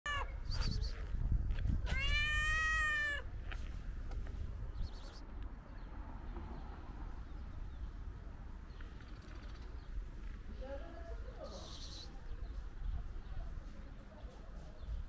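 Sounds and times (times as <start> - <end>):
cat meowing: 0.1 - 0.4, 1.9 - 3.3.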